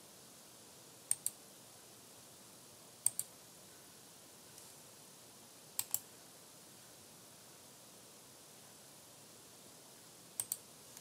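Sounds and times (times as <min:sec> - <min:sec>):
computer mouse clicks: 0:01.1 - 0:01.4, 0:03.0 - 0:03.3, 0:05.8 - 0:06.1, 0:10.4 - 0:11.0.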